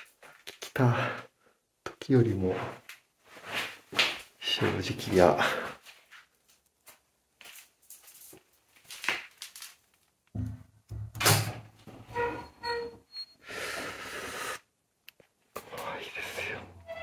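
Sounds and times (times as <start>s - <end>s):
door hinge squeaks: 12.0s - 13.4s
sharp inhale through teeth: 13.4s - 14.7s.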